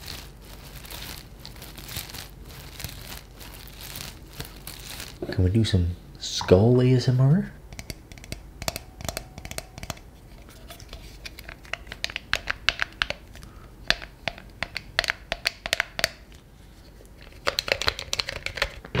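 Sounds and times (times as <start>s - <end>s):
fingers tapping and scratching plastic: 7.7s - 10.0s, 10.8s - 16.4s, 17.2s - 19.0s.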